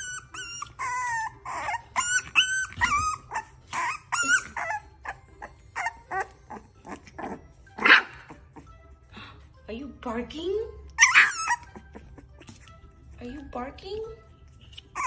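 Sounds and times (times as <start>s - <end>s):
puppies whining and yelping: 0.0s - 9.0s, 10.8s - 13.1s, 14.5s - 15.0s.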